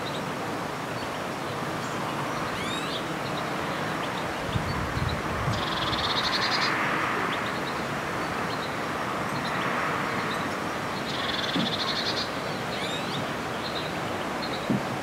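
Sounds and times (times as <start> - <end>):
background noise rush: 0.0 - 15.0
songbird trilling: 2.4 - 3.4, 10.3 - 14.7.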